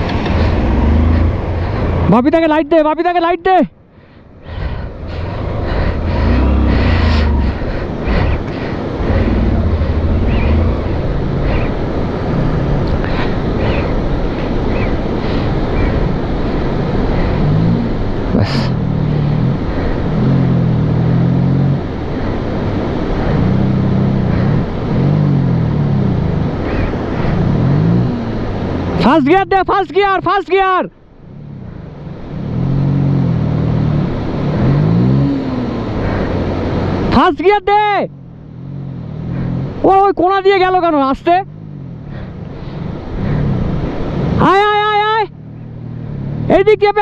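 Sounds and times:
motorcycle engine revving: 0.0 - 2.2, 5.2 - 29.0, 31.2 - 37.1, 38.1 - 40.1, 41.2 - 44.6
stream water rushing: 0.0 - 47.0.

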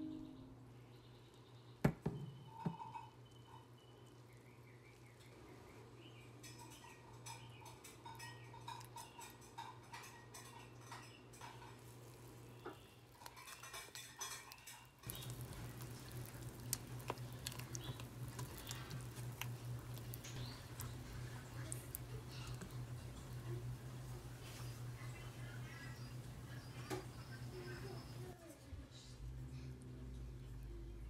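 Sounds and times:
faint low hum: 0.0 - 31.0
spatula stirring batter in bowl: 7.6 - 25.1.

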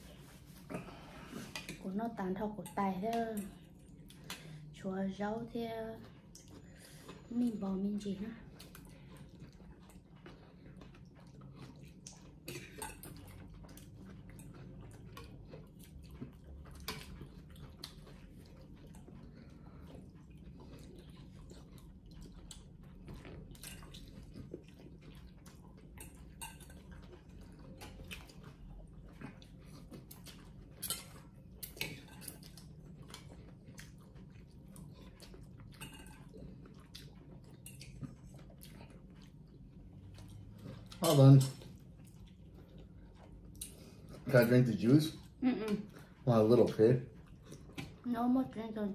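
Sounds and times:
cutlery clinking on ceramic bowls: 12.5 - 13.2, 35.7 - 36.4.

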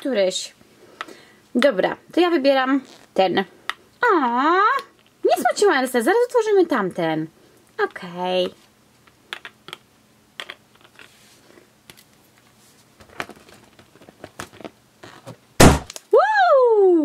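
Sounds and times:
loud thump: 15.6 - 15.9.

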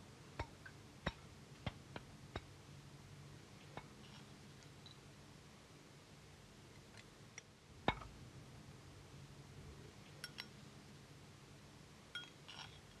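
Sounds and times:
light clinks: 10.1 - 10.6, 12.1 - 13.0
sharp ringing clink: 12.2 - 12.6.

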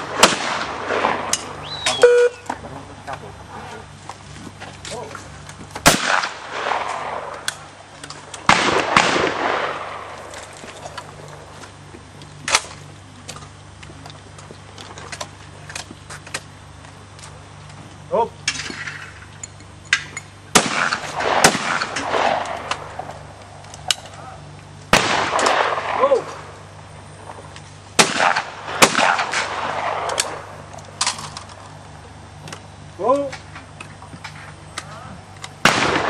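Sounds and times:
shotgun shots echoing: 0.1 - 1.6, 5.8 - 7.7, 8.4 - 10.4, 20.5 - 23.2, 24.9 - 26.5, 28.0 - 30.6, 35.6 - 36.0.

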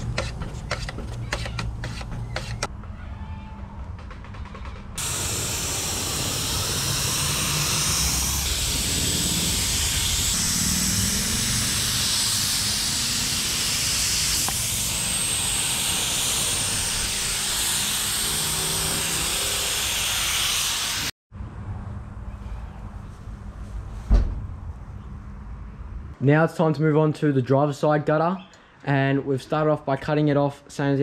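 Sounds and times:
spray gun hissing: 5.0 - 17.1.

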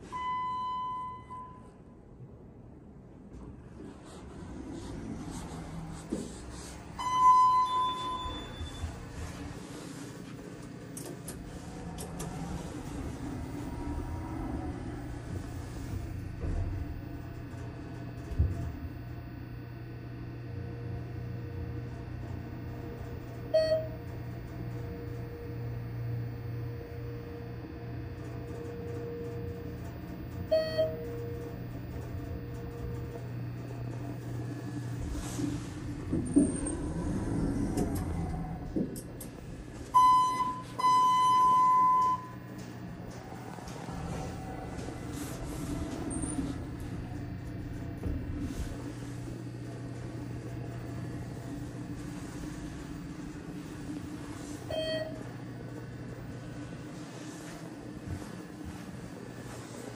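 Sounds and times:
elevator chime: 0.0 - 1.8, 7.0 - 9.3, 23.5 - 27.3, 28.2 - 34.1, 39.8 - 48.4, 54.6 - 55.7
elevator drive hum and whine: 0.0 - 59.9
elevator two-tone chime: 0.1 - 1.7, 7.0 - 9.0, 23.5 - 24.0, 30.4 - 31.8, 39.8 - 42.6, 54.7 - 55.3.

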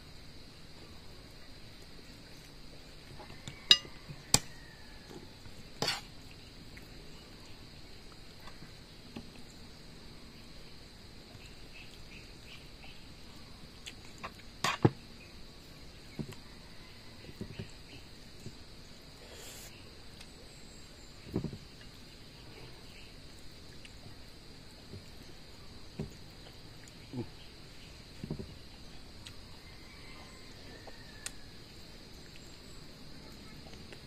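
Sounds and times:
dishes clinking on wooden table: 3.6 - 4.0.

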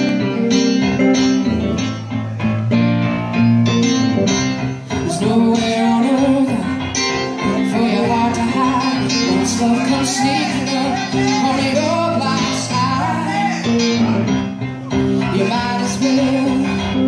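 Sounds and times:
keyboard: 0.0 - 17.0
strummed electric guitar chords: 0.0 - 17.0
person singing: 4.7 - 17.0.

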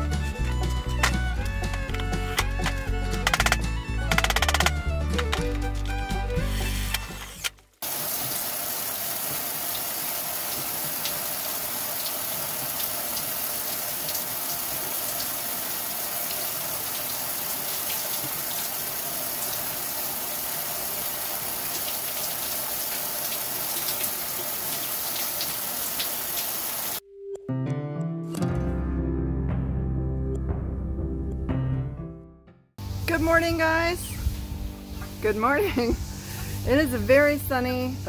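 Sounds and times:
music: 0.0 - 7.8, 27.0 - 38.0
shower running: 7.8 - 27.0.

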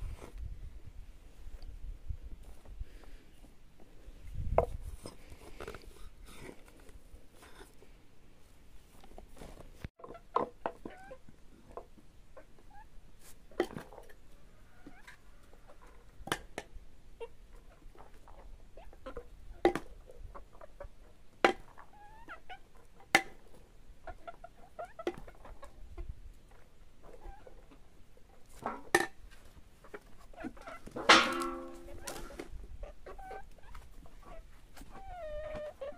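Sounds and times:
hens clucking softly: 10.0 - 16.2, 17.1 - 35.9.

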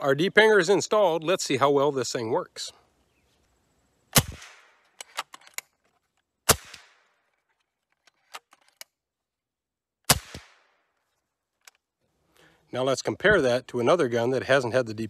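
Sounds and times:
air rifle shots: 4.1 - 4.9, 6.5 - 7.2, 10.1 - 10.8.

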